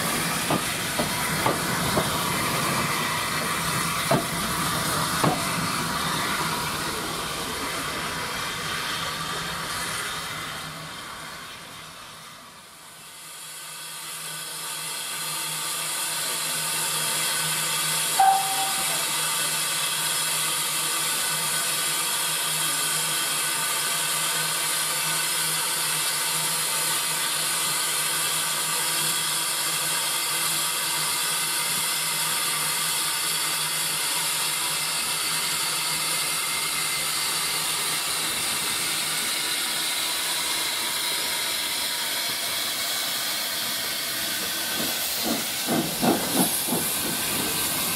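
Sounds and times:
steam locomotive hissing: 0.0 - 47.9
short sharp tone: 18.2 - 19.2.

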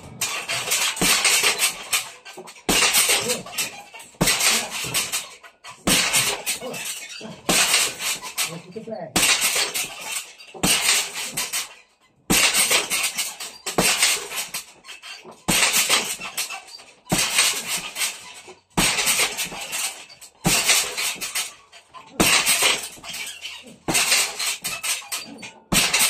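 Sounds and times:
chains rattling: 0.0 - 26.0
punches on heavy bag: 2.7 - 5.2, 13.8 - 14.6, 17.1 - 18.2, 18.8 - 21.4, 23.9 - 24.9, 25.7 - 26.0.

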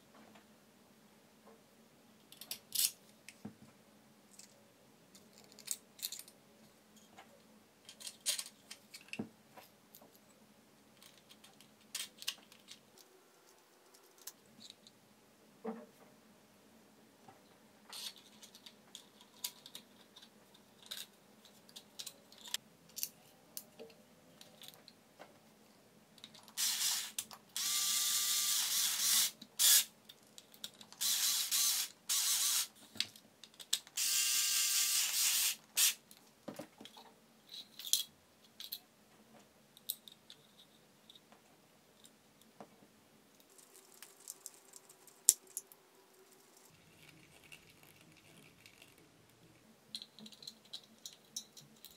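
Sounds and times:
plastic parts clicking and tapping: 17.9 - 25.0, 49.9 - 51.9
electric screwdriver driving screws: 26.6 - 29.9, 31.0 - 32.7.

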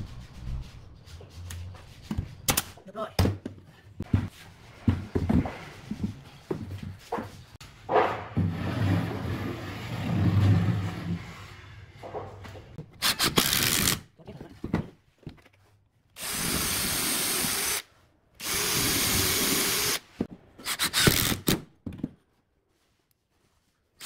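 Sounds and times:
cordless drill boring into wood: 16.2 - 17.8, 18.4 - 20.0.

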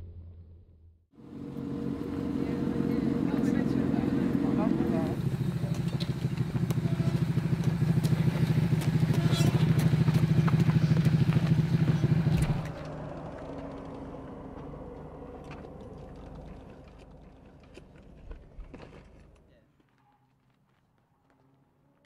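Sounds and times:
motorcycle engine running: 1.2 - 17.8.

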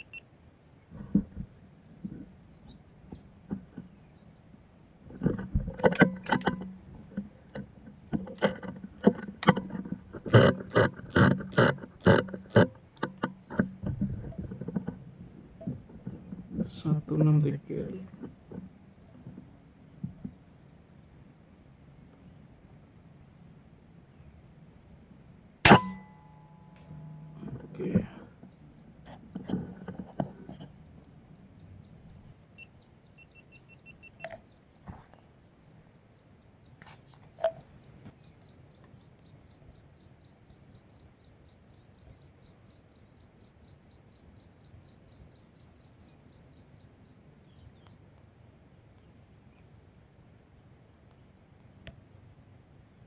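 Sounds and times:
high rapid animal chirps: 0.0 - 0.2
lower chirping: 0.0 - 0.3, 24.1 - 49.8
sharp clicks and knocks: 5.1 - 15.0.

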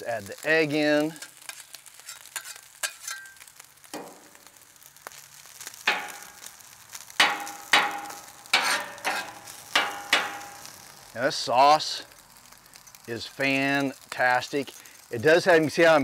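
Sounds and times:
rice sizzling on griddle: 0.0 - 16.0
metal spatulas scraping steel: 1.2 - 3.4, 7.3 - 10.4.

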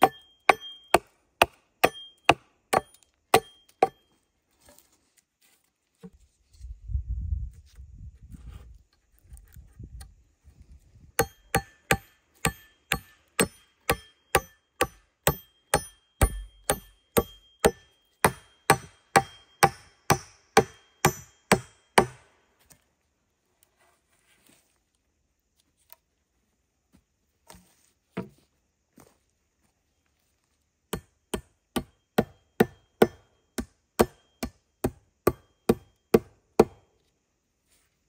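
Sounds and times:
axe chopping wood: 0.0 - 4.0, 11.2 - 22.2, 30.9 - 36.8.

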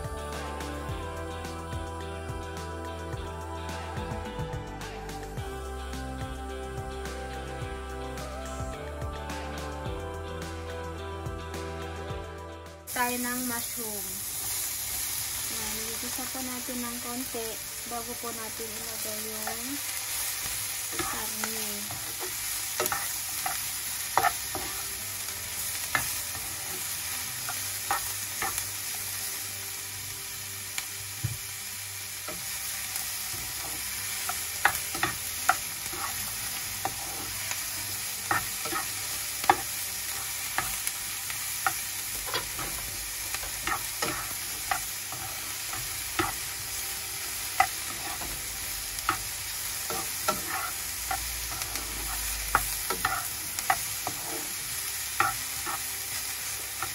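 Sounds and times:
vegetables sizzling in frying pan: 12.9 - 56.9
spatula scraping pan: 20.9 - 24.9, 33.3 - 40.7, 49.9 - 55.9.

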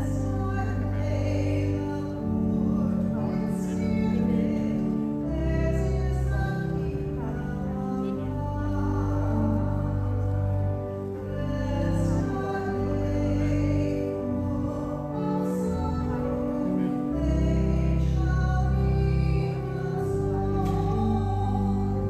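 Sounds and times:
keyboard sustained chords: 0.0 - 22.0
people singing a hymn: 11.3 - 22.0.

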